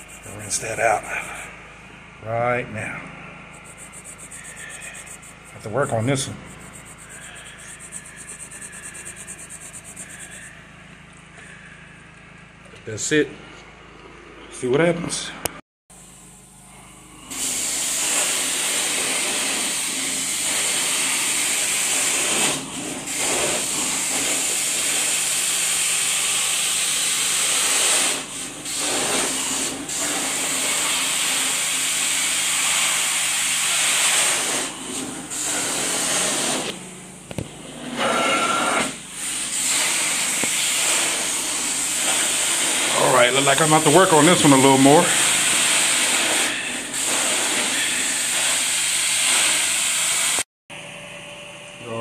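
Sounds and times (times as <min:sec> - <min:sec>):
carpet cleaner wand hissing: 0:00.0 - 0:01.5, 0:03.5 - 0:10.7, 0:17.3 - 0:50.4.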